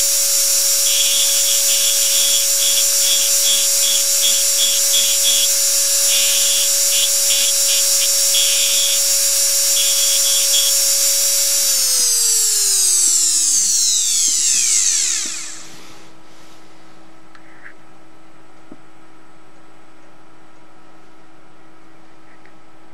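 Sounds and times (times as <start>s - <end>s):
bit scratching metal: 0.0s - 13.2s
rotary tool whining: 0.0s - 16.1s.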